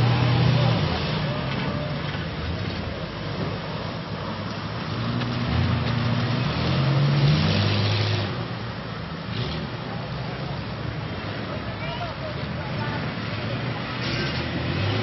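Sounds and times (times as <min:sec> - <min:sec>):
jeep engine revving: 0:00.0 - 0:02.9, 0:04.8 - 0:08.6, 0:13.1 - 0:15.0.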